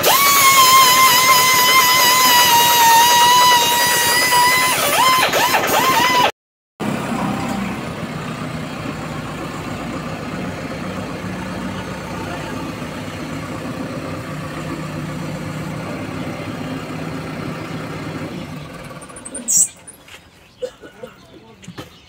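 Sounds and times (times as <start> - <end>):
diesel engine running at low revs: 0.0 - 20.6
brief high squeak: 19.2 - 20.0.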